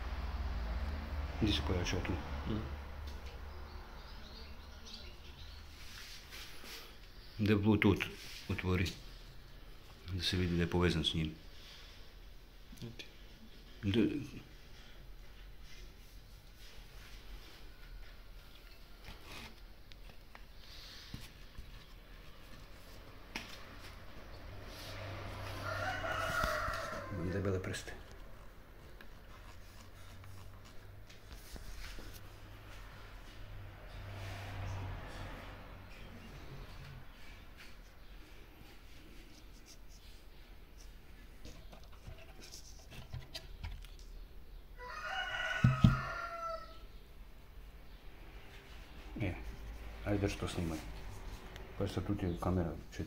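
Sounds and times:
rooster crowing: 25.3s - 27.6s, 44.8s - 46.9s
dull knocks: 45.6s - 46.1s.

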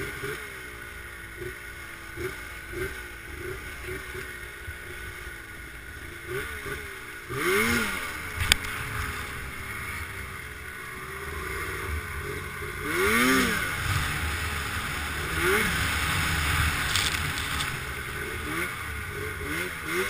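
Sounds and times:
snowmobile engine revving: 0.0s - 20.0s.

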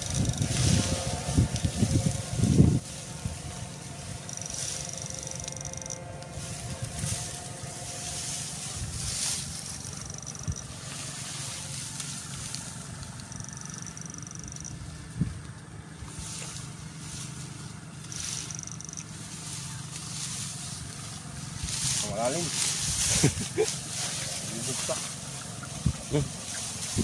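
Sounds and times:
steady low hum: 0.0s - 27.0s
legs swishing through wet grass: 19.2s - 27.0s.

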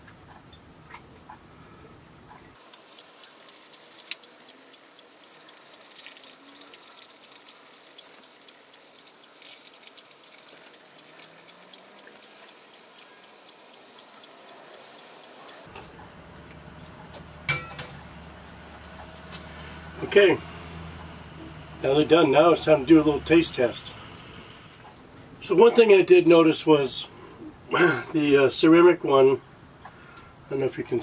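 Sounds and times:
water pouring and trickling: 2.6s - 15.7s.

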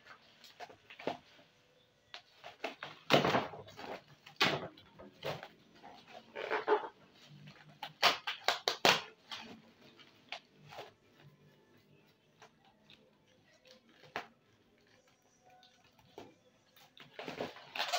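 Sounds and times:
bubble wrap crinkling and tearing: 5.2s - 16.2s.

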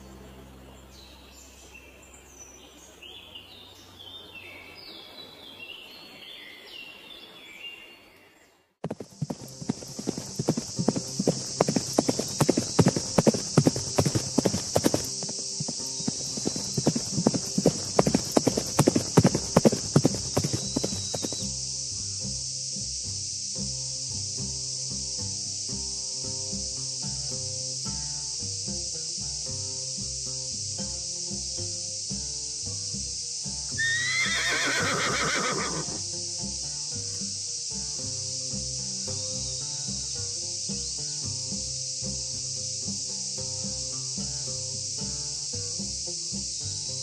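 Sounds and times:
birds chirping: 0.0s - 21.8s
steady high hiss: 0.0s - 47.0s
horse hooves clip-clopping: 8.8s - 21.7s.

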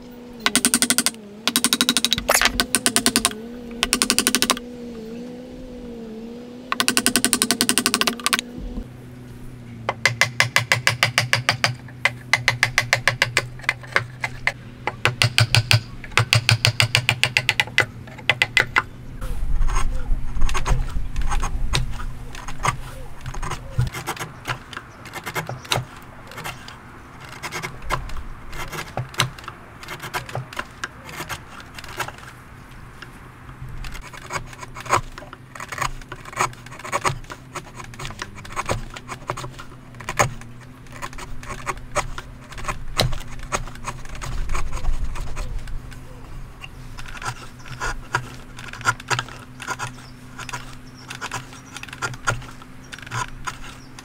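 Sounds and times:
chisel paring wood: 0.4s - 4.6s, 6.7s - 8.4s, 9.9s - 18.9s, 20.5s - 32.3s, 34.0s - 45.6s, 46.6s - 54.0s
mallet tapping chisel into wood: 9.9s - 13.5s.

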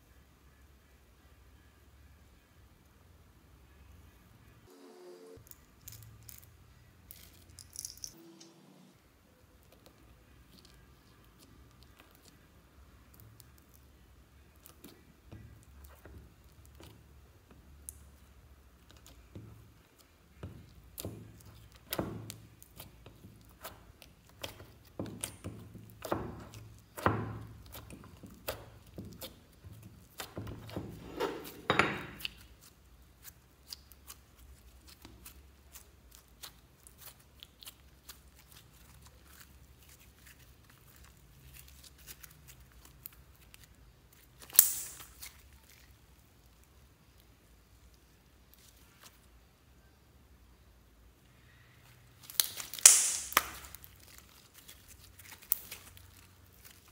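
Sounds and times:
slime sticky clicks and pops: 52.3s - 53.8s.

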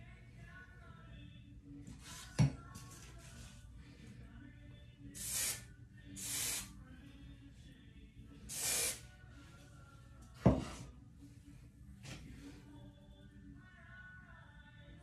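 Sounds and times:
hairspray can hissing: 5.2s - 6.7s, 8.5s - 9.0s.

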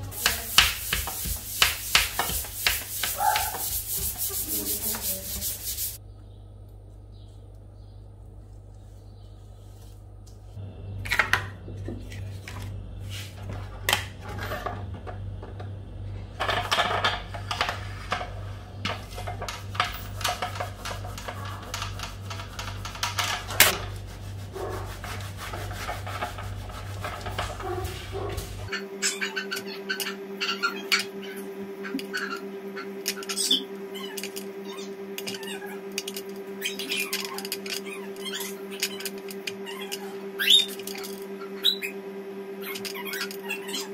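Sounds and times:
plastic smoothers rubbing fondant: 0.0s - 6.0s, 19.0s - 28.7s
low hum: 0.0s - 43.9s
clicks and handling noises: 32.8s - 34.5s, 35.2s - 40.1s.

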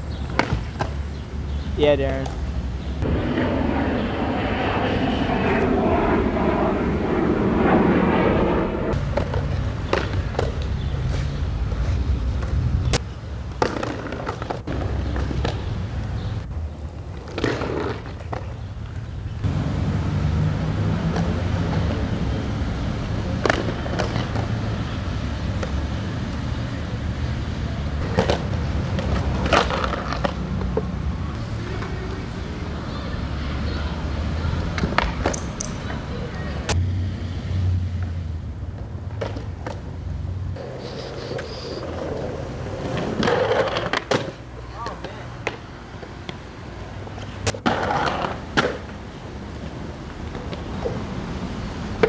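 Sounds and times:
skateboard wheels rolling on concrete: 0.0s - 52.0s
skateboard clacks: 12.4s - 15.7s, 23.3s - 24.6s, 28.0s - 32.2s, 34.7s - 36.0s, 40.6s - 46.5s, 47.1s - 51.0s.

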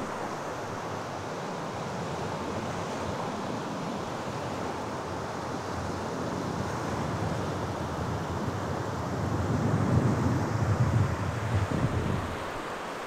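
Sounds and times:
sea surf: 0.0s - 13.0s
wind buffeting microphone: 6.5s - 13.0s
wind rushing: 9.2s - 12.8s.

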